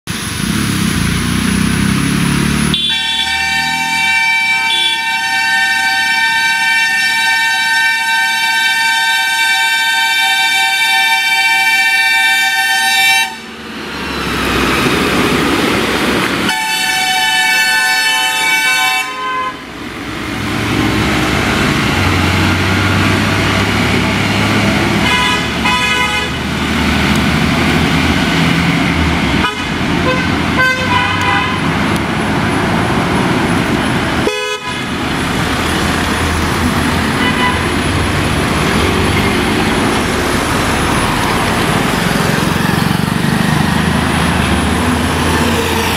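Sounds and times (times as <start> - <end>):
traffic noise: 0.0 - 45.9
vehicle horn blasts: 2.7 - 13.5, 16.5 - 19.6, 25.0 - 26.4, 29.4 - 31.7, 34.2 - 34.9, 37.2 - 37.7
truck diesel engine running: 13.4 - 18.9, 19.6 - 45.9.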